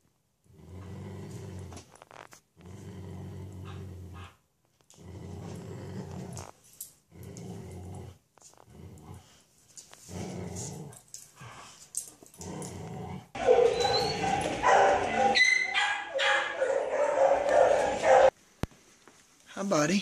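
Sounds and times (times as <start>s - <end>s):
dogs play-growling: 0.4s - 15.4s.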